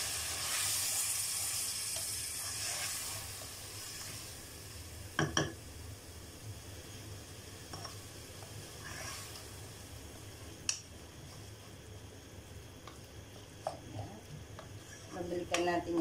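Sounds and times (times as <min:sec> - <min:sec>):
faint sizzling: 0:00.0 - 0:16.0
wooden spatula stirring in a pot: 0:01.8 - 0:04.3, 0:07.8 - 0:09.5.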